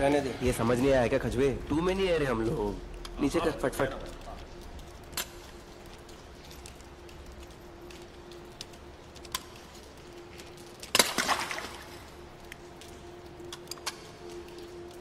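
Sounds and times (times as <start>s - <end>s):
faint ticks: 4.0s - 10.9s, 12.2s - 15.0s
foot splashing in puddle: 10.9s - 12.1s.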